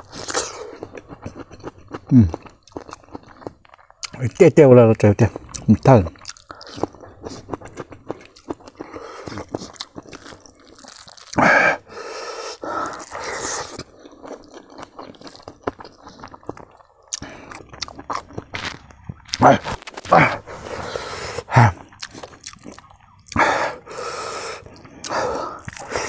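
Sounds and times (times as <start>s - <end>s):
wet chewing and lip-smacking: 0.0s - 4.4s, 5.2s - 26.0s
breathy noises: 8.7s - 9.6s, 11.3s - 14.2s, 17.2s - 17.8s, 19.1s - 22.4s, 23.3s - 26.0s.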